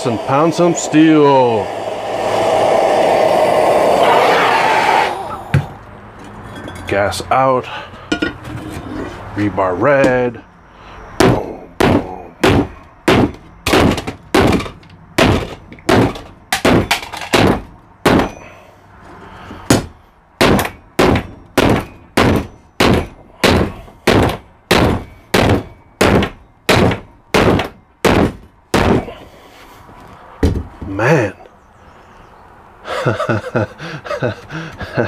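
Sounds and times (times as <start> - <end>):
workbench rattling: 11.2 - 18.3.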